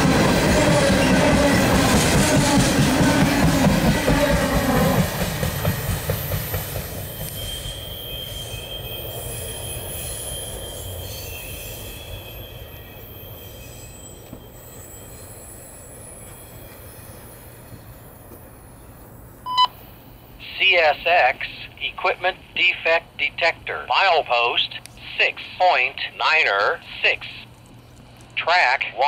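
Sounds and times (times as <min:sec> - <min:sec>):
train wheels squealing on rails: 0:00.0 - 0:19.4
low train rumble: 0:00.0 - 0:29.0.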